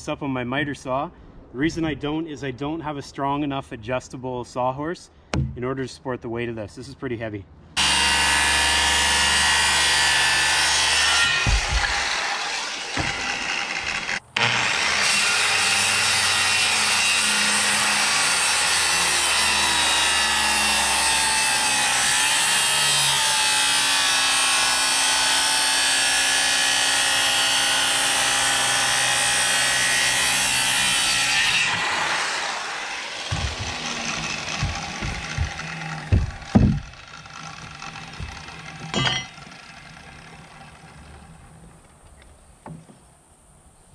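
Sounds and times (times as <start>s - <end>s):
circular saw cutting timber: 7.8s - 41.9s
saw set down on timbers: 11.2s - 12.1s, 12.9s - 13.5s, 33.3s - 37.0s, 38.1s - 39.5s.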